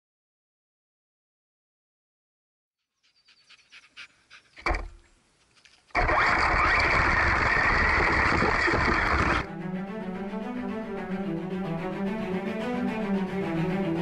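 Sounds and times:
rc truck driving over grass: 0:04.6 - 0:09.5
music with low bowed strings: 0:09.4 - 0:14.0.

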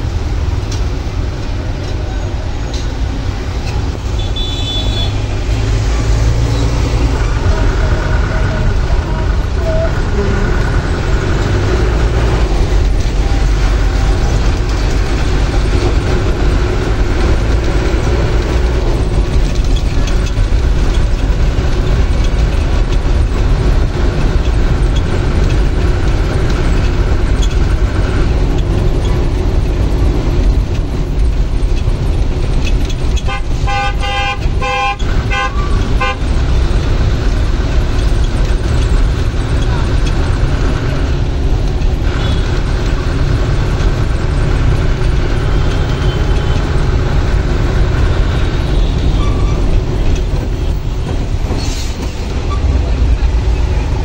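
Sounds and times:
bus engine and road rumble: 0:00.0 - 0:54.0
vehicle horn honking: 0:04.2 - 0:05.3, 0:33.3 - 0:36.2.

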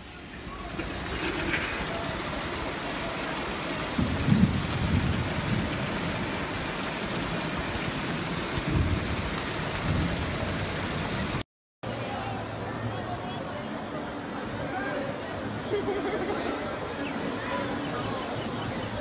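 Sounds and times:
heavy rain: 0:00.0 - 0:11.4
rushing flood torrent: 0:00.0 - 0:19.0.

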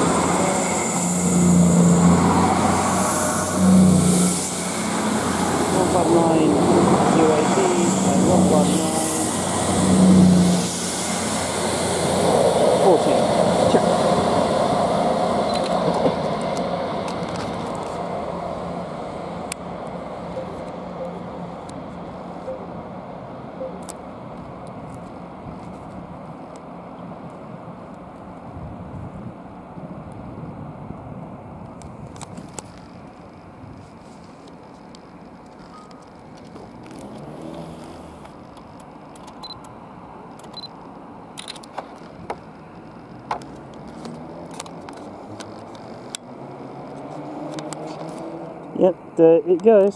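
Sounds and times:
train wheels on rails: 0:00.0 - 0:26.6
diesel train engines: 0:00.0 - 0:49.9.

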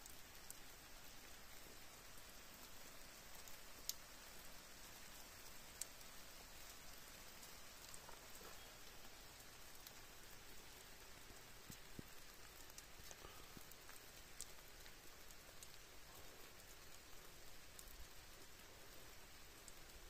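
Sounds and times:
light rain falling: 0:00.0 - 0:20.0
sharp raindrop taps: 0:05.1 - 0:18.8.

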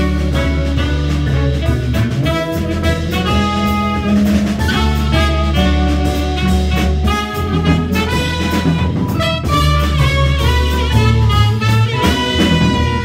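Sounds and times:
drum kit: 0:00.0 - 0:13.0
plucked upright bass: 0:00.0 - 0:13.0
saxophone: 0:00.0 - 0:13.0
trumpet: 0:00.0 - 0:13.0.

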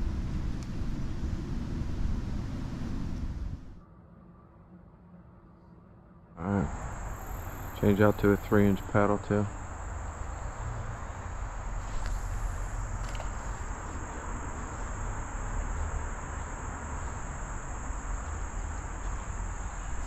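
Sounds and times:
constant low rumble: 0:00.0 - 0:03.8, 0:06.4 - 0:20.0
insects singing high drone: 0:06.4 - 0:20.0.

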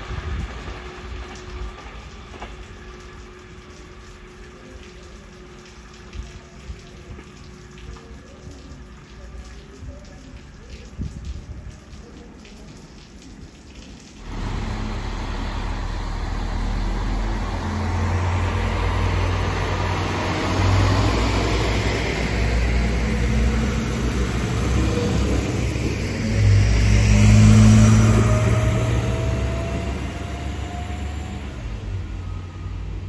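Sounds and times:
diesel railcar engine: 0:14.2 - 0:33.0.

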